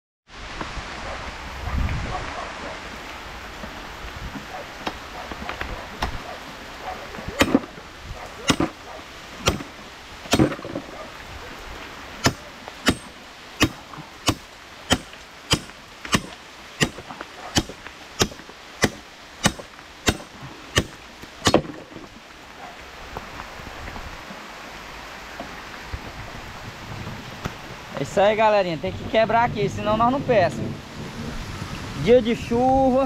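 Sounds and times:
rain hissing: 0:00.3 - 0:33.0
hammer striking metal chain: 0:08.5 - 0:08.8, 0:12.3 - 0:17.0, 0:17.6 - 0:21.7.

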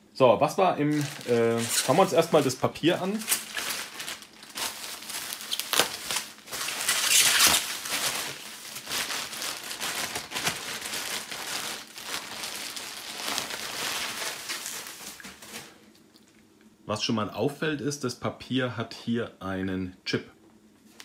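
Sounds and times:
plastic packaging crinkling: 0:00.8 - 0:16.2.

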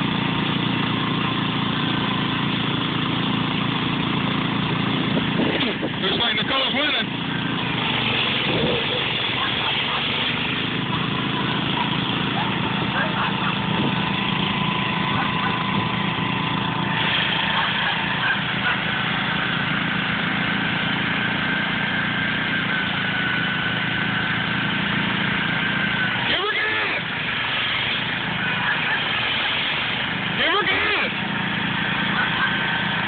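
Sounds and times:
garden tractor engines running: 0:00.0 - 0:33.0.

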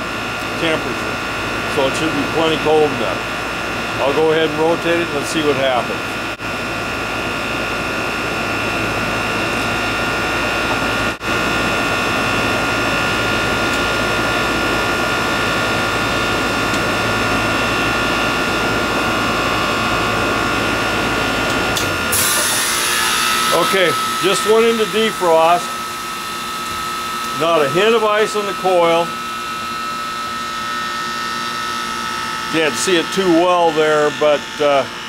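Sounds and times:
heat pump humming: 0:00.0 - 0:35.0
high whine: 0:00.0 - 0:35.0.

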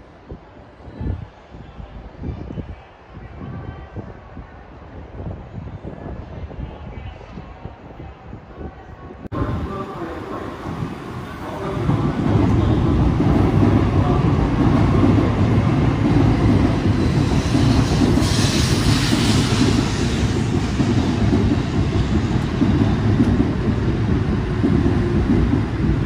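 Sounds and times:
train cars rumbling past: 0:09.3 - 0:26.0
hissing rush: 0:15.9 - 0:22.4.

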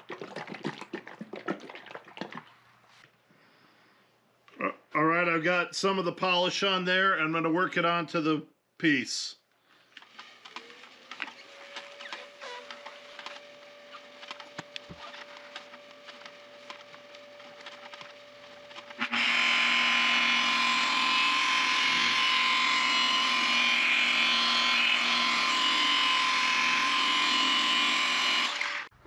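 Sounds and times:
rotary polisher whining: 0:10.0 - 0:29.0.

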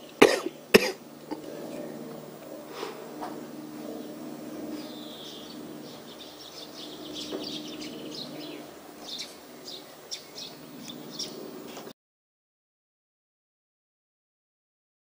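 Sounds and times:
birds chirping: 0:00.0 - 0:11.9
steady low hum: 0:00.0 - 0:11.9.

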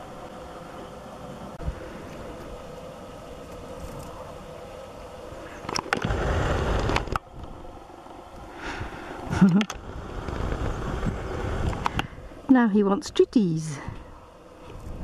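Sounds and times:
wind buffeting microphone: 0:06.0 - 0:15.0.

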